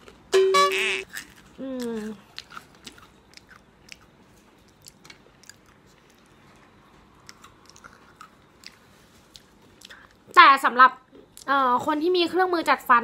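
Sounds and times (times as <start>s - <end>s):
person chewing crunchy chips: 0.0s - 10.3s.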